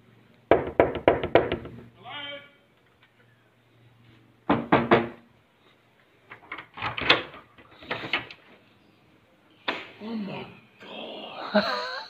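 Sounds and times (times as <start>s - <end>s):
knock on door: 0.5s - 1.8s, 4.5s - 5.2s
door lock clicks and rattles: 6.3s - 8.4s.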